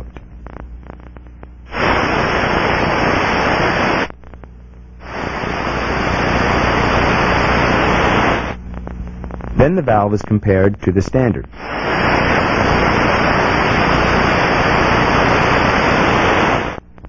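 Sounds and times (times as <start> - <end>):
steady rushing hiss: 0.8 - 4.1, 5.0 - 9.6, 11.5 - 16.8.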